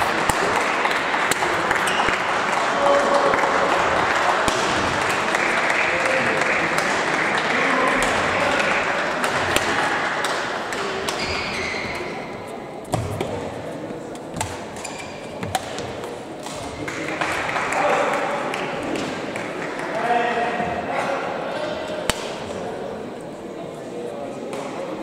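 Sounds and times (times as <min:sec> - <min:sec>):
hubbub of many voices: 0:00.0 - 0:25.0
racket hitting shuttlecock: 0:00.1 - 0:02.3, 0:04.4 - 0:05.2, 0:09.2 - 0:12.2, 0:12.9 - 0:13.5, 0:14.1 - 0:17.6, 0:22.0 - 0:22.6
shoes squeaking on court: 0:11.2 - 0:12.2, 0:14.4 - 0:15.9.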